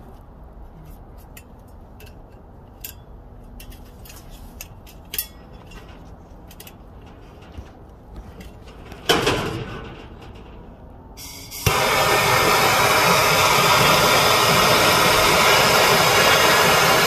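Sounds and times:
metallic clicks of tools: 0.9 - 6.8.

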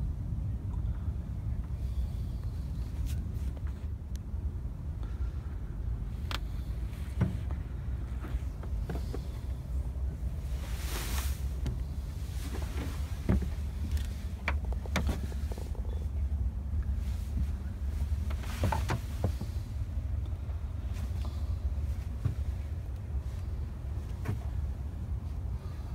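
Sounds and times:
light clicks and knocks: 11.6 - 16.2.

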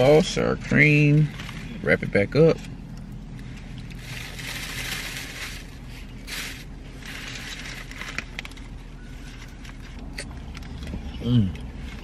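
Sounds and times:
paper wrapper crinkling: 3.4 - 10.7.

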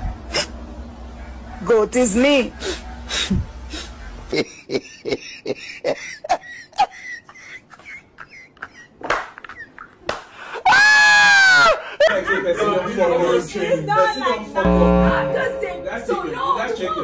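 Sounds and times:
people laughing: 3.7 - 10.0, 11.6 - 13.5
high-pitched held squeal: 14.6 - 16.8.

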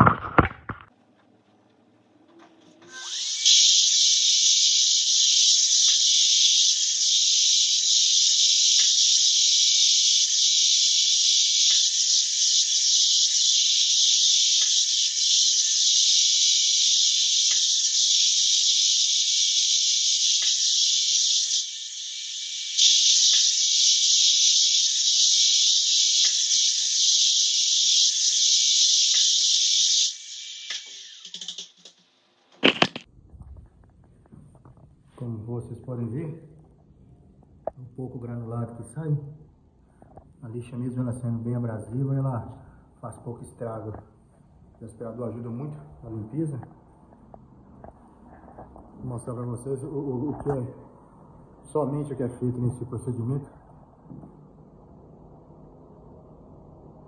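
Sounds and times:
scattered ticks: 3.2 - 33.1.

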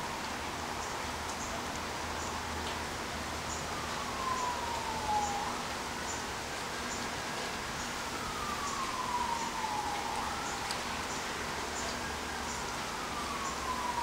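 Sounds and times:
emergency vehicle siren wailing: 3.3 - 14.0.

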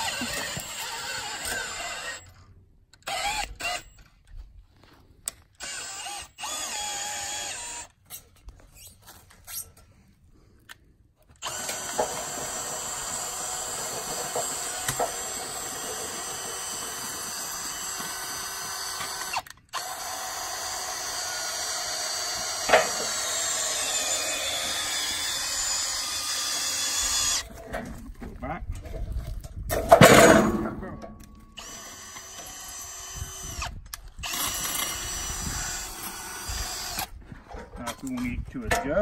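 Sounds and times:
cordless drill running: 0.0 - 2.3, 3.0 - 4.0, 5.6 - 8.0, 11.4 - 27.5, 31.6 - 37.2.

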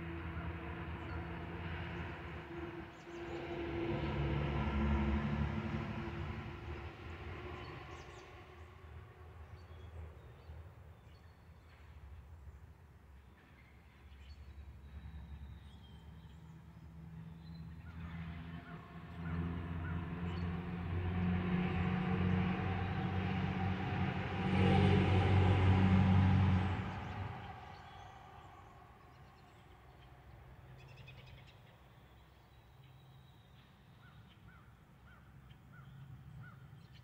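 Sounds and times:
vehicle driving past: 0.0 - 10.6, 14.9 - 31.4.

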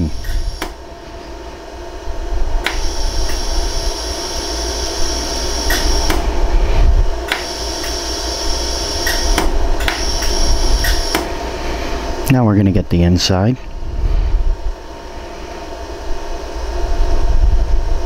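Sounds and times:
higher machine hum: 0.0 - 18.0
steady machine hum: 0.0 - 18.0
laser welder snaps: 0.2 - 0.8, 2.6 - 3.5, 5.4 - 6.3, 7.3 - 11.3.

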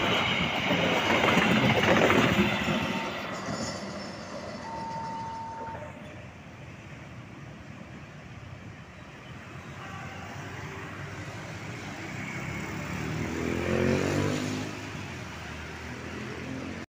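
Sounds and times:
traffic driving past: 9.1 - 16.8
engine passing close: 12.0 - 15.1.

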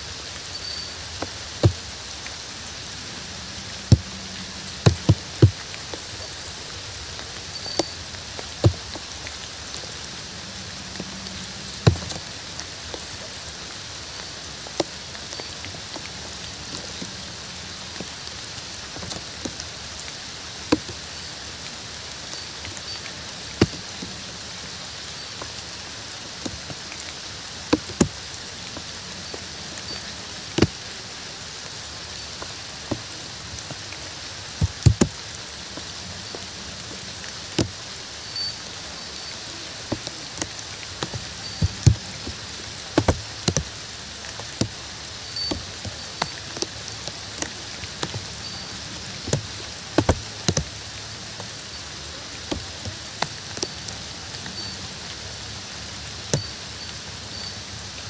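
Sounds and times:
rain hiss: 0.0 - 58.0
large drops tapping: 10.5 - 12.3, 39.9 - 43.7.

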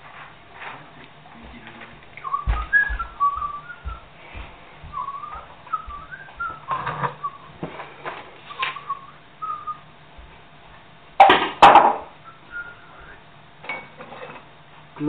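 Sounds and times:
faint whistled notes: 2.2 - 4.1, 4.9 - 7.6, 8.4 - 9.9, 12.2 - 13.2.

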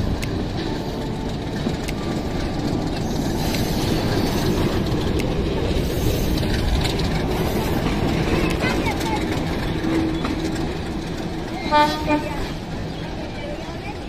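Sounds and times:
sharp rail clicks: 0.0 - 14.0
train wheels rumbling on rails: 0.0 - 14.0.

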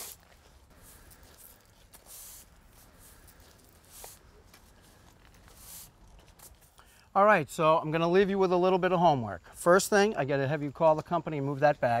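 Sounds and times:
broom sweeping on pavers: 0.0 - 6.8.

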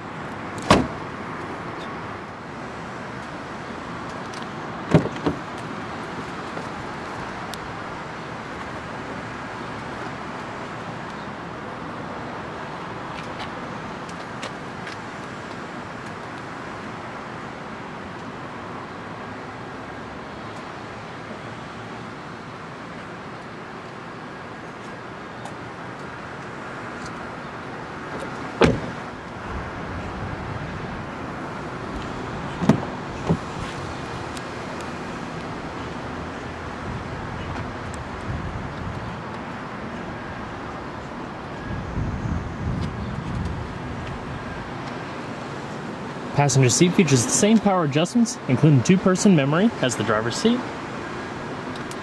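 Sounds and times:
traffic noise: 0.0 - 52.0
car trunk lid slamming shut: 0.6 - 1.0, 4.9 - 5.4, 28.6 - 29.0, 32.6 - 33.5.

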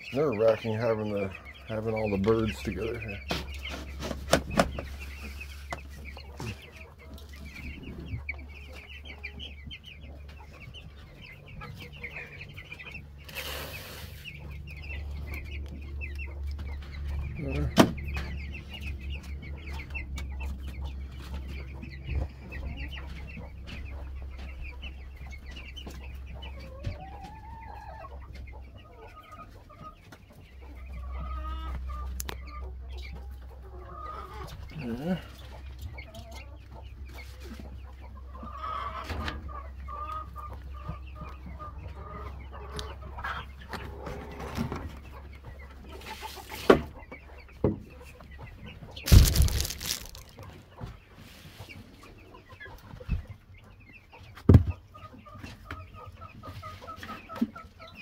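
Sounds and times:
chickens cheeping and clucking: 0.0 - 58.0
rustling noise: 49.0 - 50.4.

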